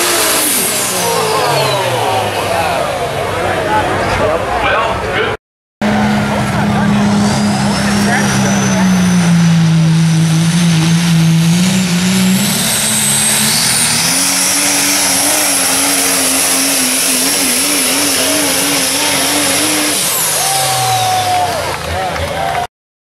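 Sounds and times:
high turbocharger whistle: 0.0s - 2.3s, 5.9s - 21.8s
diesel truck engine at full throttle: 0.0s - 22.7s.

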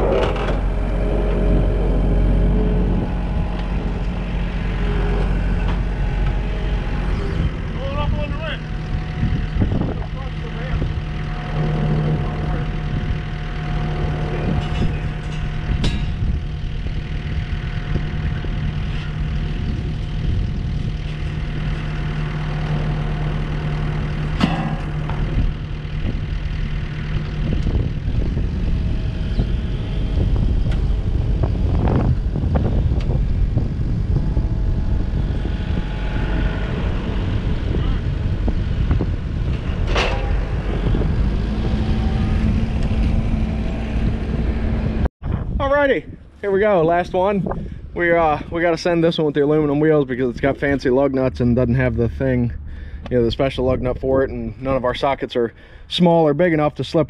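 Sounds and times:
diesel engine running: 0.0s - 56.0s
sharp metal clanks: 11.3s - 17.2s, 24.2s - 25.4s, 39.5s - 41.1s.

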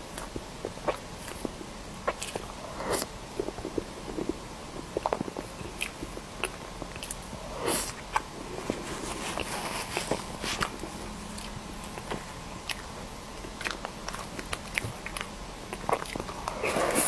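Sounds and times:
squishy chewing: 0.0s - 17.0s
lip smacks: 9.3s - 17.0s
breathy slurps: 15.8s - 17.0s.

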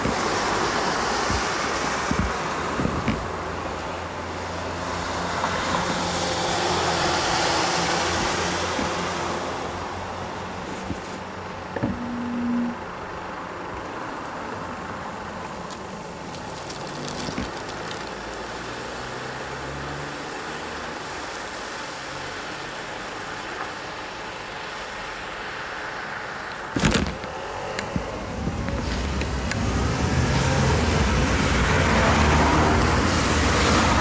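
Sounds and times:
road traffic hum: 0.0s - 34.0s.

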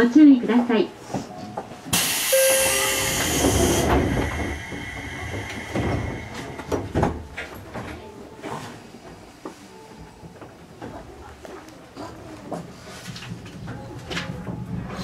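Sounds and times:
train low rumble: 1.0s - 11.8s, 12.4s - 15.0s
compressed air hiss: 1.9s - 6.8s.

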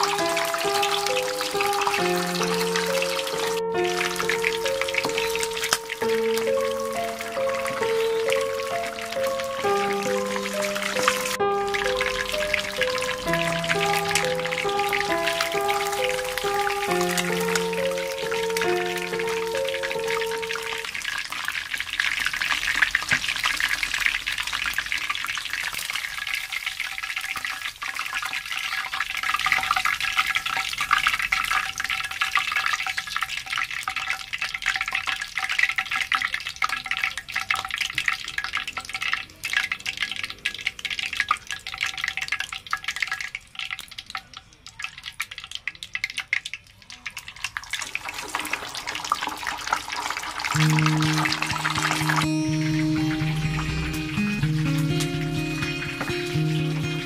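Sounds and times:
chicken deep-frying in oil: 0.0s - 57.0s.

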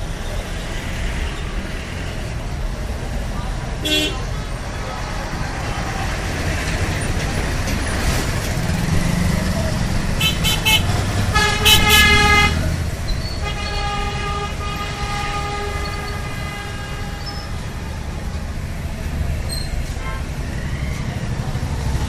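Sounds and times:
traffic engines rumbling: 0.0s - 22.0s
vehicle horns honking: 3.8s - 4.3s, 10.2s - 17.7s.

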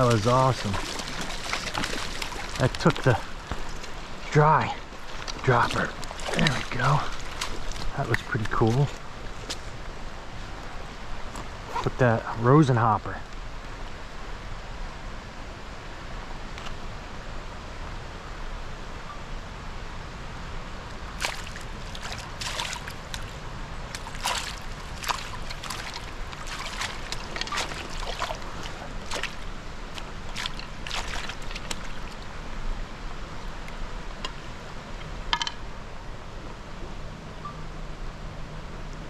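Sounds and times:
fish splashing in net: 0.0s - 4.0s, 5.0s - 8.9s, 21.2s - 32.2s
stream running over rocks: 0.0s - 15.1s, 20.6s - 36.2s.

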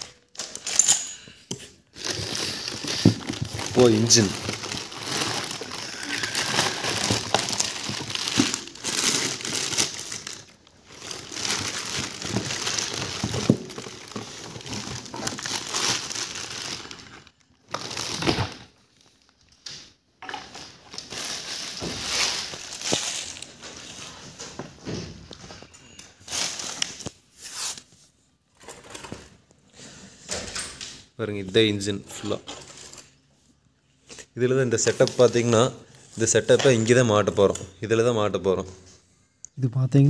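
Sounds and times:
plastic bag crinkling: 1.9s - 19.6s, 20.3s - 24.2s, 26.0s - 27.2s.

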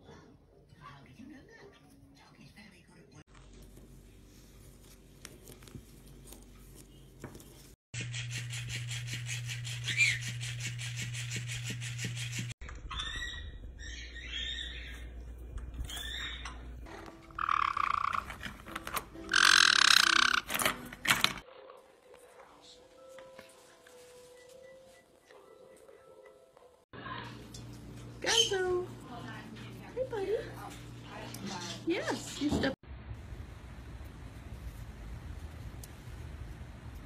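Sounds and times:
parrot squawks: 9.8s - 10.4s, 17.3s - 18.4s, 19.3s - 20.5s
parrot chattering calls: 17.3s - 18.3s, 19.3s - 20.5s.

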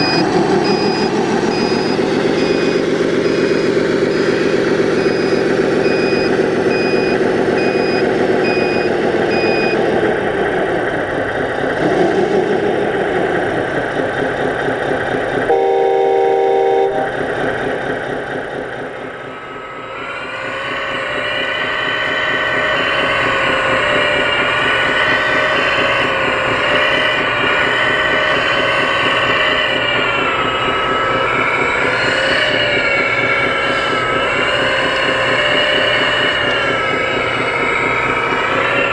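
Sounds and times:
reversing beeper: 0.0s - 9.9s, 15.5s - 17.2s
excavator engine: 0.0s - 38.9s
truck diesel engine running: 0.0s - 38.9s
air horn blast: 15.5s - 17.1s.

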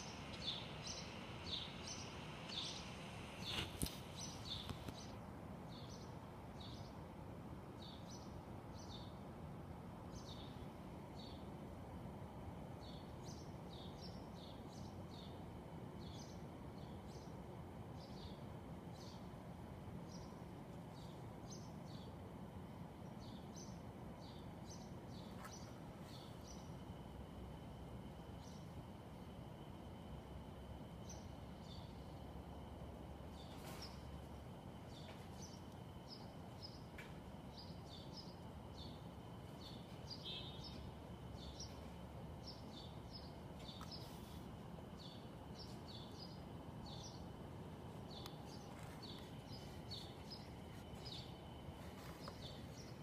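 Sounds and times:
small birds chirping: 0.0s - 7.0s, 23.0s - 27.0s, 28.3s - 29.0s, 29.9s - 53.0s
low city hum: 0.0s - 53.0s.

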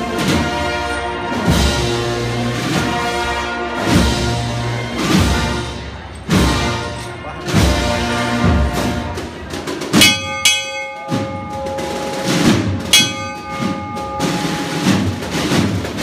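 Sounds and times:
marching band drums beating: 0.0s - 16.0s
hand bell ringing: 10.0s - 14.8s.

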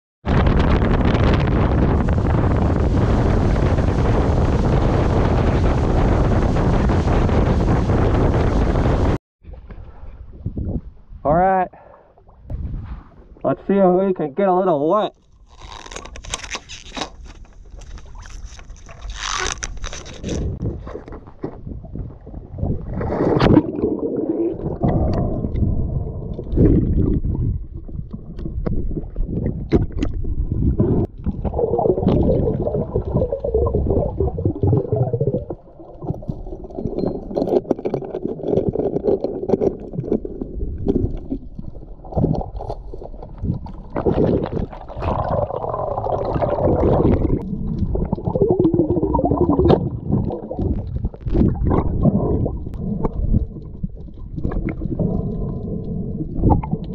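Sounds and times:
underwater gurgling water: 20.3s - 56.9s
underwater clicks: 28.1s - 56.9s.

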